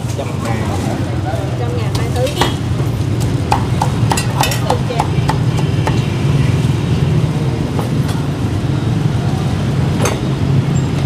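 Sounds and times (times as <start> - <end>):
street traffic rumble: 0.0 - 11.0
cleaver chopping on wooden block: 3.5 - 6.0.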